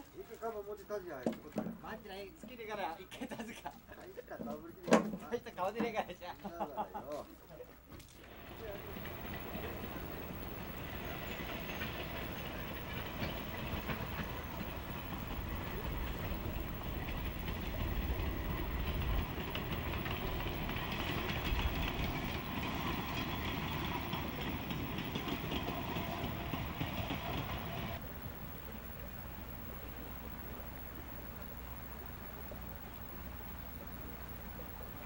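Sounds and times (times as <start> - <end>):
train wheels clattering over rail joints: 8.3 - 28.0.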